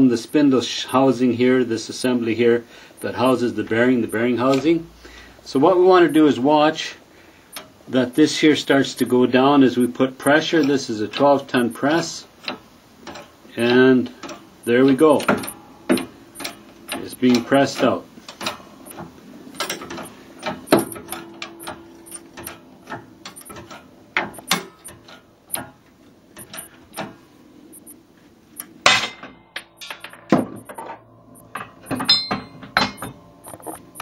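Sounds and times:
metallic cracks and knocks: 0:11.2 - 0:27.2, 0:28.6 - 0:34.0.

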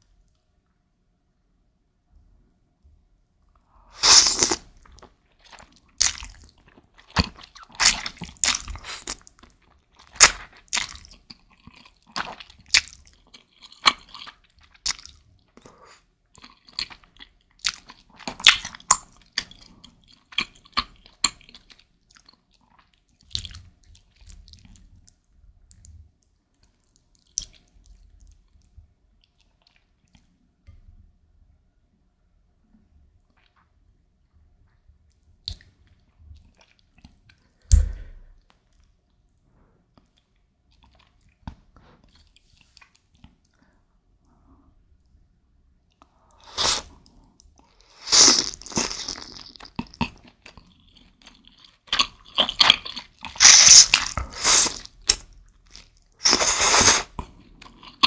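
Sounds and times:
person slurping noodles: 0:04.0 - 0:04.6, 0:46.4 - 0:47.0, 0:47.9 - 0:49.4, 0:53.3 - 0:54.9, 0:56.2 - 0:57.2.

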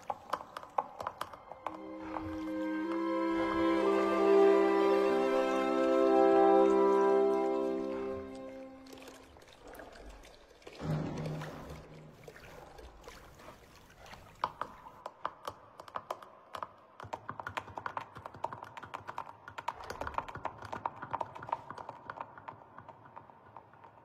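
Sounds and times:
hooves clattering on tiled floor: 0:00.0 - 0:02.4, 0:14.4 - 0:24.0.

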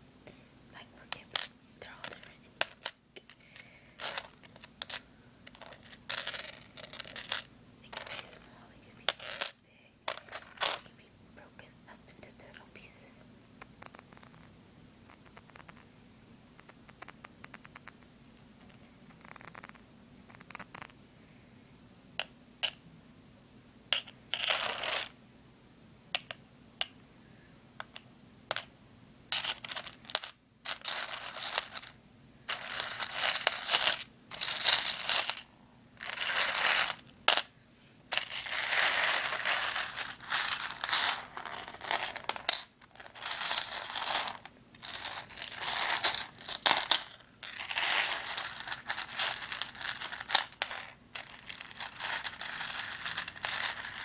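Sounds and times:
seashells scraping and rattling: 0:29.4 - 0:31.9, 0:32.5 - 0:35.4, 0:36.0 - 0:37.0, 0:38.1 - 0:54.0.

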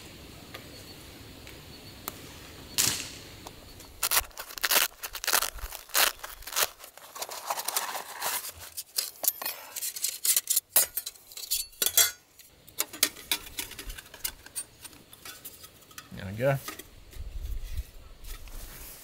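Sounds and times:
metal plates clinking: 0:09.0 - 0:16.9.

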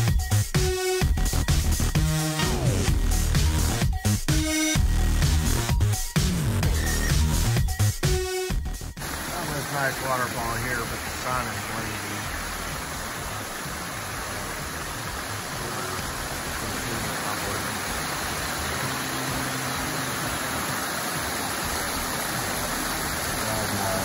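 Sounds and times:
waterfall cascading over rocks: 0:09.0 - 0:24.0.

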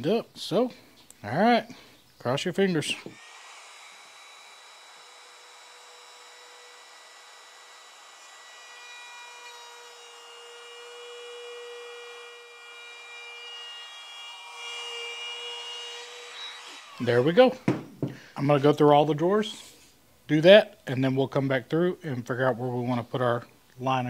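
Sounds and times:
router motor whine: 0:03.0 - 0:17.5
router bit hissing in wood: 0:03.0 - 0:18.2.

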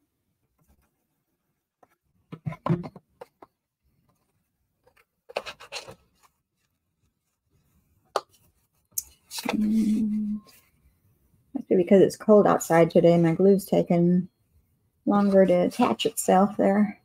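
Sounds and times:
cardstock rustling and scraping: 0:04.1 - 0:06.8.

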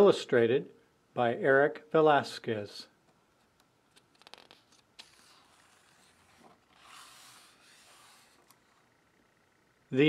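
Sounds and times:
page turning rustle: 0:03.9 - 0:08.5.

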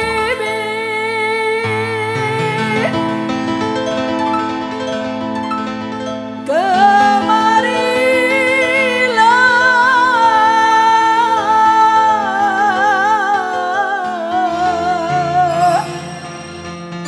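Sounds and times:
woman singing into a microphone: 0:00.0 - 0:03.5, 0:06.4 - 0:16.5
keyboard chords: 0:11.5 - 0:17.0.

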